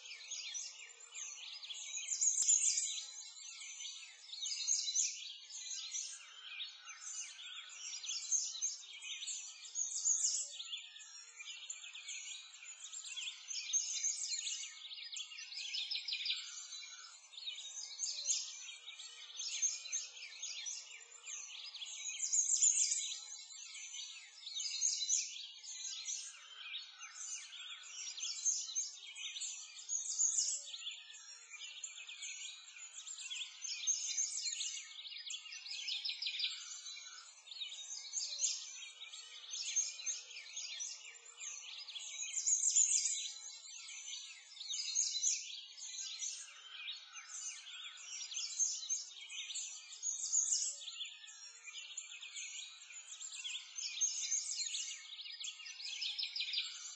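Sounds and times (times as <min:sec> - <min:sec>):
birds chirping and singing: 0:00.0 - 0:56.9.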